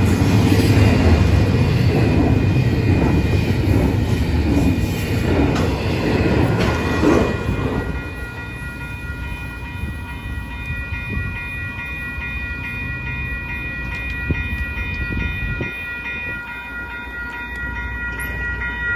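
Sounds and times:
crossing warning bell ringing: 0:00.0 - 0:18.9
freight train rumbling past: 0:00.0 - 0:18.9
train wheel clicks: 0:02.0 - 0:08.8, 0:12.9 - 0:16.4.

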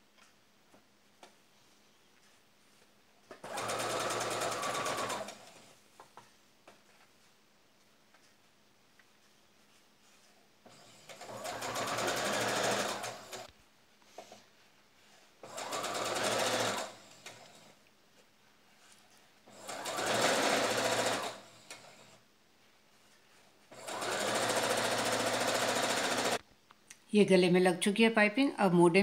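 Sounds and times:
electric sewing machine stitching: 0:03.4 - 0:05.7, 0:10.7 - 0:13.5, 0:15.4 - 0:17.8, 0:19.5 - 0:22.2, 0:23.7 - 0:26.4.

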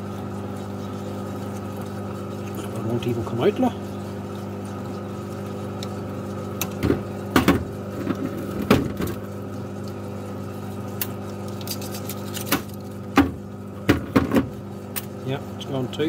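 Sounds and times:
steady machine hum: 0:00.0 - 0:16.0.

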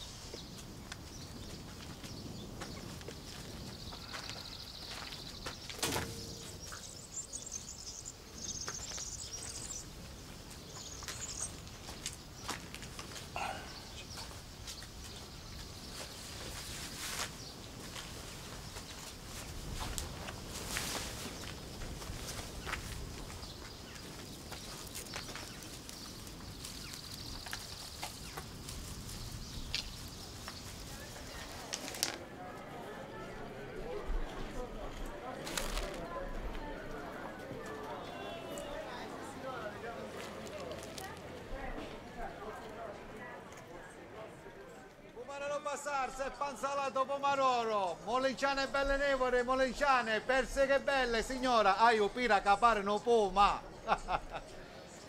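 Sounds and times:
birds chirping: 0:00.0 - 0:32.0, 0:45.5 - 0:55.0
countryside ambience: 0:00.0 - 0:55.0.

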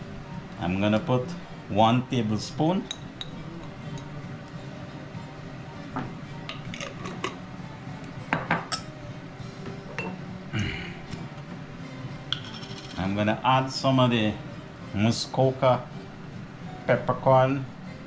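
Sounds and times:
metal spoon clinking on glass: 0:12.3 - 0:13.1.

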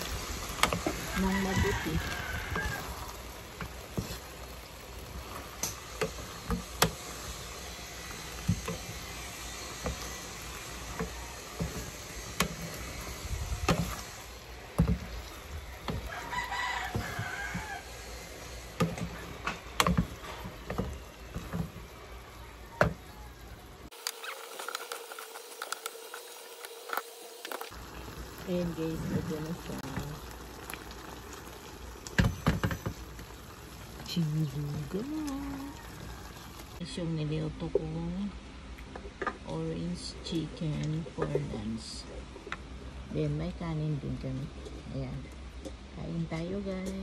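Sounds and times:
wooden spatula scraping a pan: 0:00.0 - 0:22.0.

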